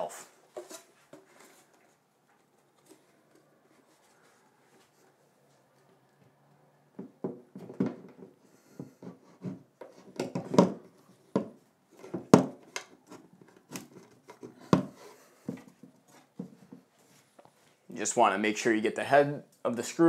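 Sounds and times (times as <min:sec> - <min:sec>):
wooden shelf knocking against wall: 0:07.0 - 0:09.6, 0:10.2 - 0:12.6.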